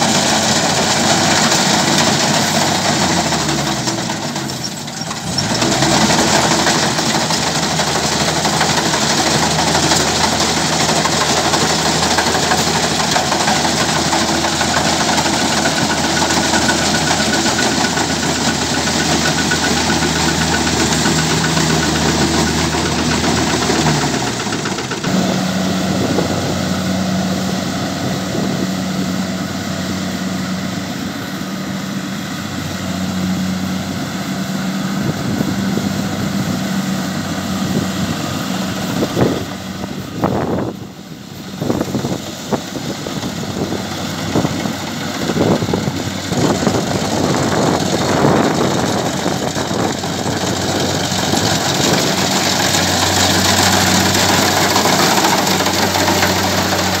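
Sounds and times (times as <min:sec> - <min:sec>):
combine harvester drone: 0:00.0 - 0:57.0
higher machine hum: 0:46.3 - 0:57.0.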